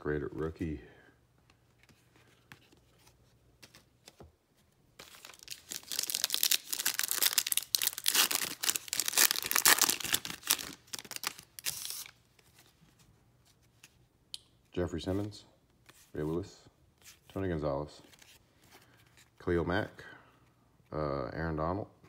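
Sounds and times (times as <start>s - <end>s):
foil wrapper tearing and crinkling: 5.0s - 12.2s.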